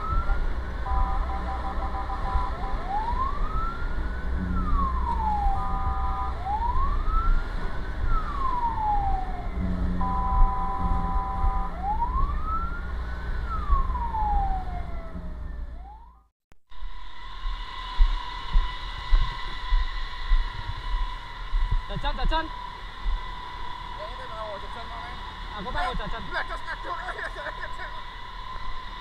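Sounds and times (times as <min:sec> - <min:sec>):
fire truck siren wailing: 0:00.0 - 0:16.3, 0:17.1 - 0:29.0
truck engine and road rumble: 0:00.0 - 0:29.0
multi-tone horn blast: 0:00.7 - 0:03.0, 0:05.5 - 0:06.4, 0:09.6 - 0:11.8.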